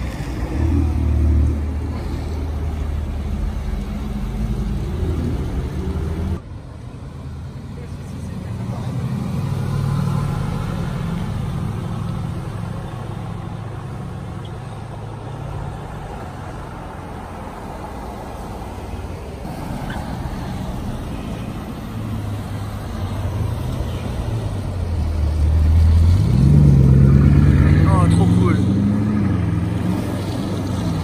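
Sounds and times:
passing traffic: 0.0s - 31.0s
car engine pulling away: 19.5s - 31.0s.

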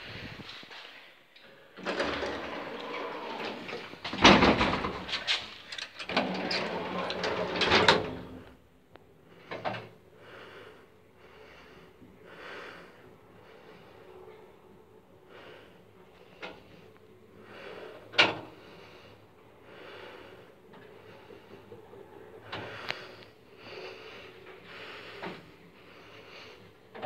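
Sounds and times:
lift doors banging and rattling: 1.8s - 8.4s.

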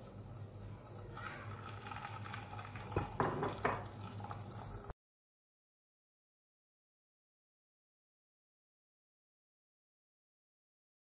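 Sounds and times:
food sizzling in hot oil: 0.0s - 4.9s
food dropped into oil: 2.9s - 4.0s.

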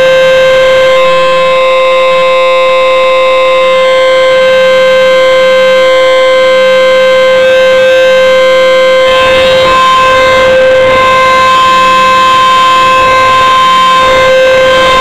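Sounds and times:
warning siren steady tone: 0.0s - 15.0s
rush of noise: 7.7s - 15.0s.

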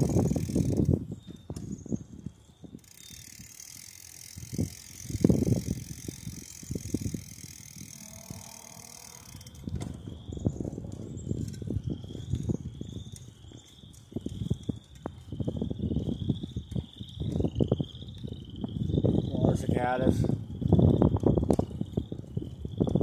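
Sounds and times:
bicycle rolling on pavement: 0.0s - 23.0s
cicadas chirring: 0.0s - 23.0s
wind on microphone: 0.0s - 23.0s.

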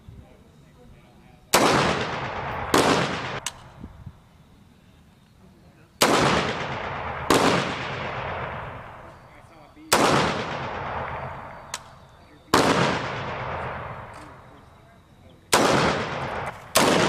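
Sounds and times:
rifle shots: 1.5s - 3.8s, 6.0s - 14.6s, 15.5s - 17.0s.

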